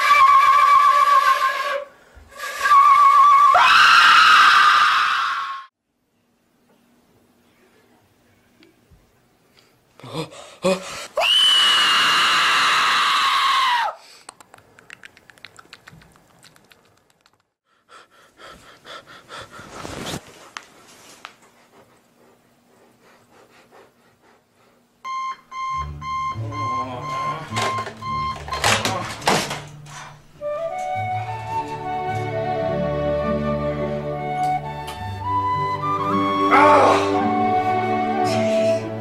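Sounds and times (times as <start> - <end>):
person screaming loudly: 3.6 - 5.6, 11.2 - 14.0, 36.5 - 37.2
alarm clock beeping: 25.1 - 28.9.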